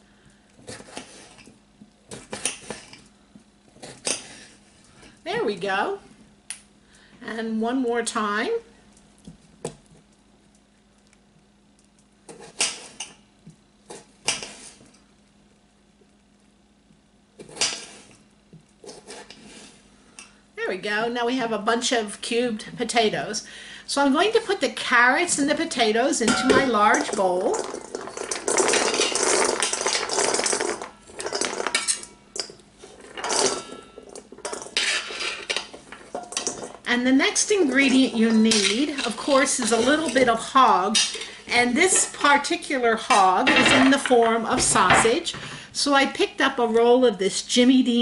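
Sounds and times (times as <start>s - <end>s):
knife scraping cutting board: 17.4s - 18.2s, 18.8s - 19.8s, 32.8s - 35.9s
vegetable pieces clattering into metal bowl: 26.1s - 42.5s, 43.1s - 45.5s.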